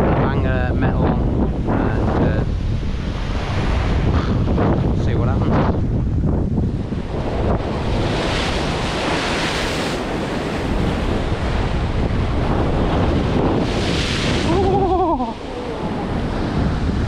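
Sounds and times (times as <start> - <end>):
wind buffeting microphone: 0.0 - 17.0
waves breaking over rocks: 6.6 - 17.0.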